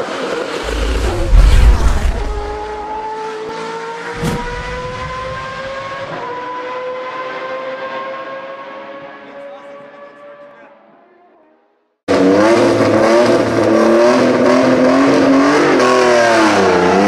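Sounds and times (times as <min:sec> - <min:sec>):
loud rush: 0:00.5 - 0:03.0, 0:04.2 - 0:05.8
race car engine accelerating: 0:00.5 - 0:09.2
sharp hit: 0:00.6 - 0:03.0, 0:04.2 - 0:05.5.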